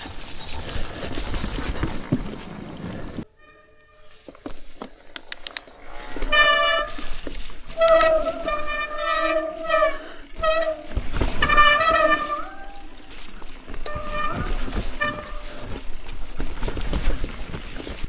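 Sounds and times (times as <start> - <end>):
bike disc brakes honking: 6.2 - 16.0
tyres rumbling on dirt: 6.2 - 18.0.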